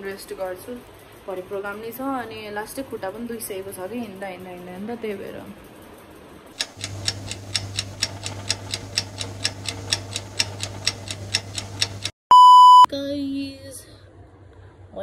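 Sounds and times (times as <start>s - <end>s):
steady low hum: 6.6s - 12.1s
clock ticking: 6.6s - 12.2s
brief lower tone: 12.3s - 12.9s
loud beep: 12.3s - 12.9s.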